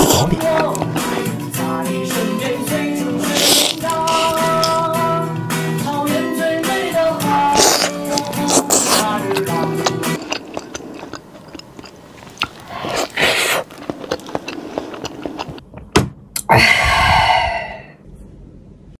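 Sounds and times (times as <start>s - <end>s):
chewing crispy food: 0.0s - 1.3s, 3.1s - 5.0s, 7.2s - 15.6s.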